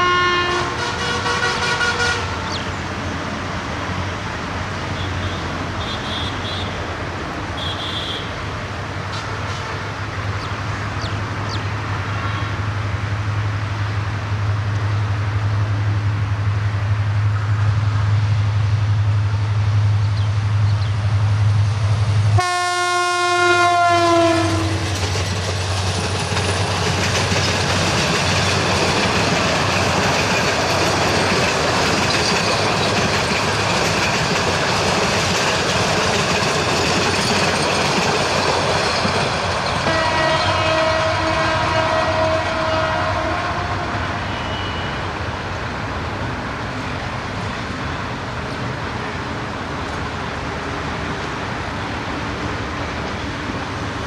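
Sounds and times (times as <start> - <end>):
train horn: 0.0 - 2.6, 22.4 - 25.0, 39.8 - 45.1
train wheels on rails: 0.0 - 54.0.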